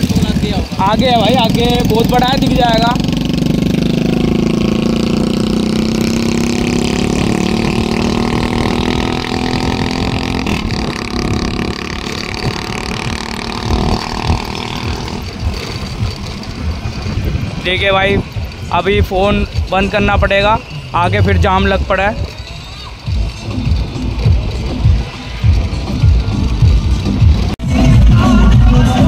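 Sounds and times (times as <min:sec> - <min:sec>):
wind buffeting microphone: 0:00.0 - 0:22.4
motorcycle engine running: 0:00.0 - 0:29.0
road noise: 0:00.0 - 0:29.0.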